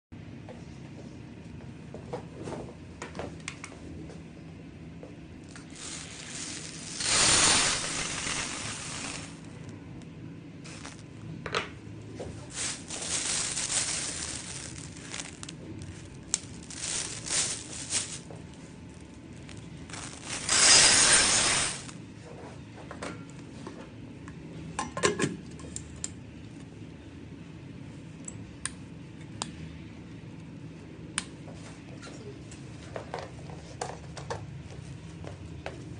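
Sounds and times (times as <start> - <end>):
dried beans poured into metal bowl: 5.8 - 9.5, 19.9 - 21.9.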